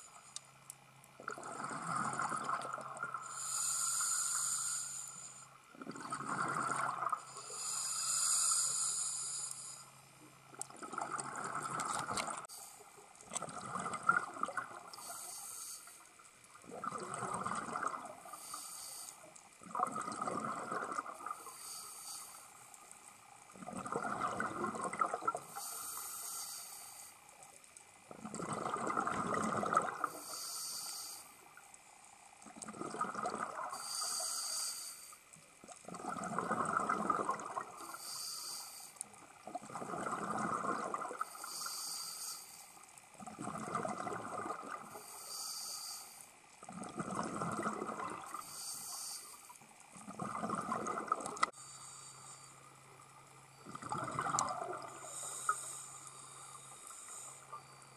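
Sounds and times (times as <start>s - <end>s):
exhaled bubbles rushing: 1.2s - 3.1s, 5.8s - 7.2s, 10.7s - 12.4s, 13.3s - 15.0s, 16.6s - 18.3s, 19.6s - 21.3s, 23.6s - 25.5s, 28.1s - 30.1s, 32.6s - 33.8s, 35.6s - 37.8s, 39.4s - 41.2s, 43.2s - 44.9s, 46.7s - 48.4s, 50.0s - 51.5s, 53.7s - 55.0s
regulator inhale hiss: 3.1s - 5.6s, 7.2s - 10.1s, 12.4s - 13.0s, 14.9s - 16.3s, 18.2s - 19.5s, 21.3s - 23.0s, 25.5s - 27.5s, 30.0s - 31.6s, 33.7s - 35.4s, 37.8s - 39.2s, 41.2s - 43.0s, 44.9s - 46.4s, 48.3s - 49.7s, 51.4s - 52.8s, 54.8s - 57.9s.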